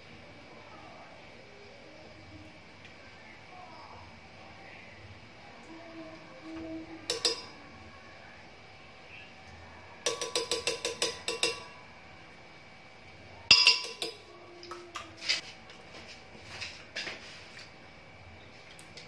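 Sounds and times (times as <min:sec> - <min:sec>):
spoon clinking on blender jar: 0:07.1 - 0:07.5, 0:10.0 - 0:11.7, 0:13.5 - 0:14.2.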